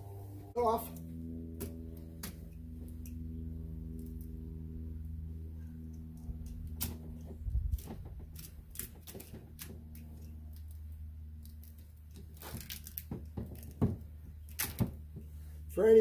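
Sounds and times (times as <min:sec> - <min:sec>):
steady low hum: 0:00.0 - 0:16.0
tape clicks and crackles: 0:05.8 - 0:15.0.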